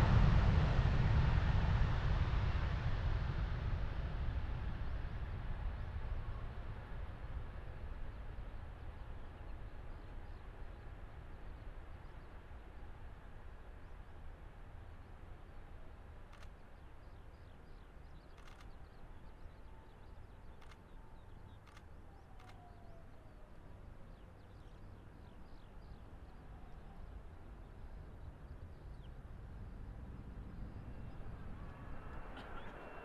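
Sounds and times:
jet engines low rumble: 0.0 - 33.0
faint ticks: 16.2 - 23.1
falling whine: 25.3 - 33.0.

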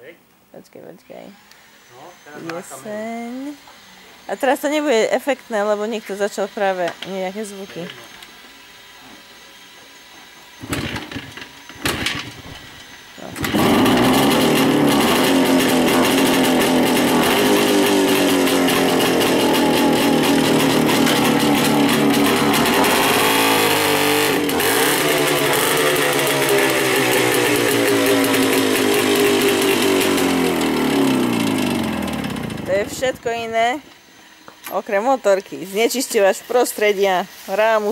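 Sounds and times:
motorcycle engine revving: 10.6 - 33.6
motorcycle kick-start kicks: 10.6 - 33.8.

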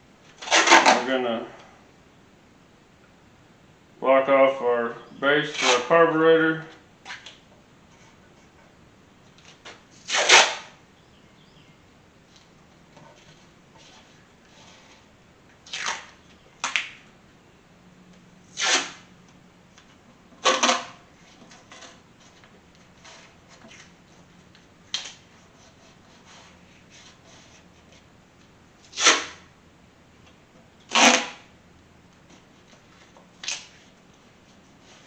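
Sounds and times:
tape ripping off a roll: 0.3 - 1.2, 5.4 - 6.0, 7.0 - 7.4, 9.3 - 10.8, 13.8 - 17.0, 18.5 - 19.1, 20.4 - 23.9, 24.8 - 28.0, 28.8 - 29.5, 30.8 - 31.5, 32.3 - 34.0.

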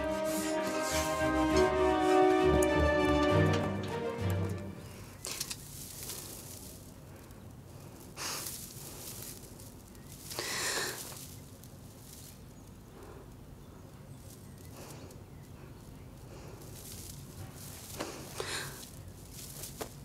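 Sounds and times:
film music: 0.0 - 5.1
short hissing noises: 8.0 - 12.5.

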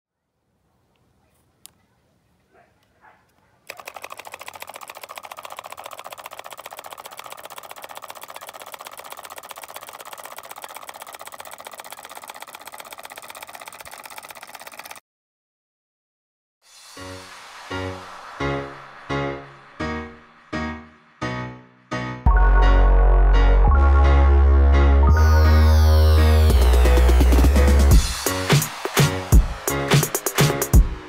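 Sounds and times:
solenoid engine clattering: 3.7 - 15.0.

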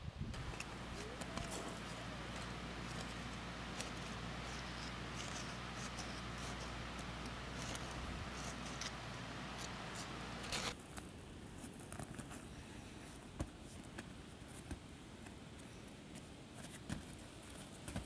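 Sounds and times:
stick scraping gravelly soil: 0.4 - 10.8.

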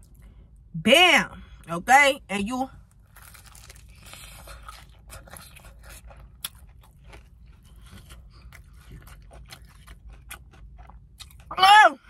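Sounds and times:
chewing crispy fried chicken: 2.8 - 11.6.

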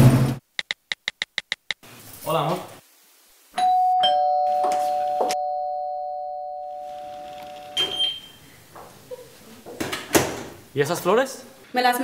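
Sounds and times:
two-tone doorbell chime: 3.6 - 8.3.

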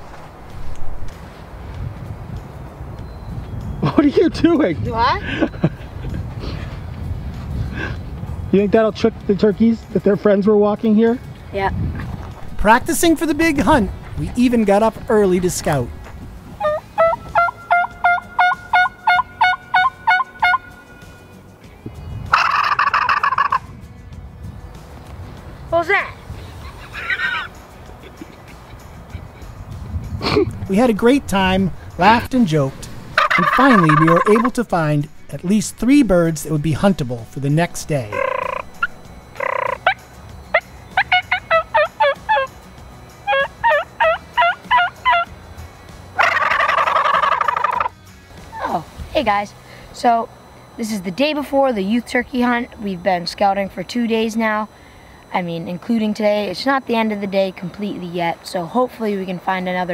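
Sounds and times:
turkey gobble: 16.6 - 20.7, 22.3 - 23.7, 26.6 - 27.6, 33.1 - 34.7, 38.1 - 42.5, 43.2 - 45.3, 46.2 - 47.9
turkey yelps: 16.6 - 20.7, 22.3 - 23.7, 26.6 - 27.6, 33.2 - 34.6, 38.1 - 42.5, 43.3 - 45.3, 46.2 - 47.9.

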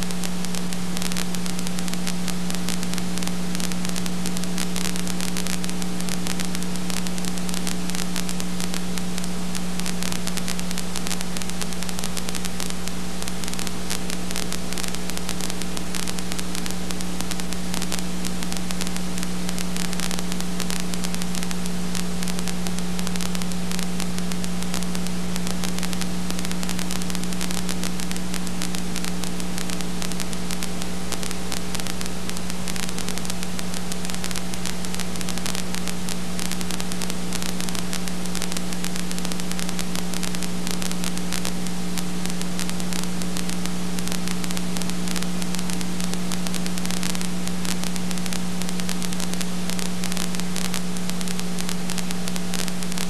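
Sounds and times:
electrical hum: 0.0 - 53.0
steady hiss: 0.0 - 53.0.

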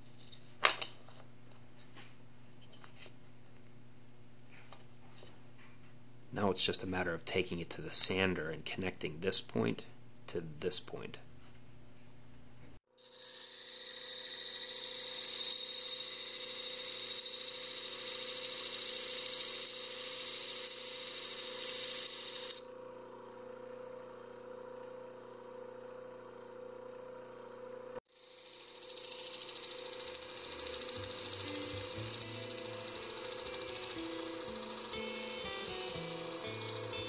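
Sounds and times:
disc sander hissing on wood: 13.1 - 22.6, 28.2 - 37.0.

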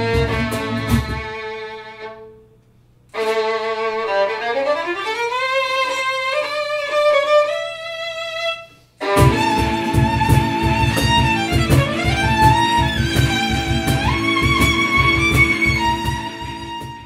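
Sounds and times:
band with guitar and cajon: 0.0 - 1.5, 9.1 - 17.0
solo violin melody: 0.0 - 17.0.

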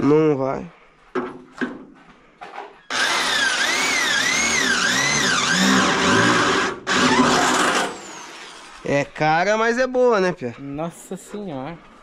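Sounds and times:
electric drill boring into metal: 2.9 - 8.8.

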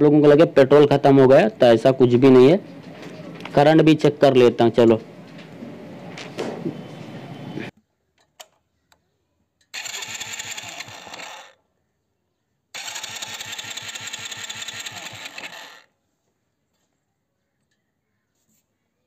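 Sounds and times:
electric starter cranking engine: 9.7 - 11.6, 12.8 - 15.9.

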